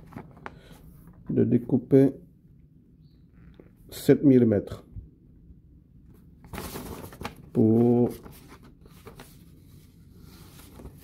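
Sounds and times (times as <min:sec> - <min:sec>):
paper rustling: 0:00.0 - 0:01.1, 0:06.1 - 0:11.0.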